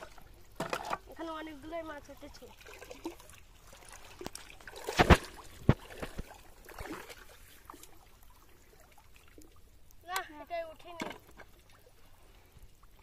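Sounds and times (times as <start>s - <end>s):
wading through muddy water: 0.0s - 9.4s.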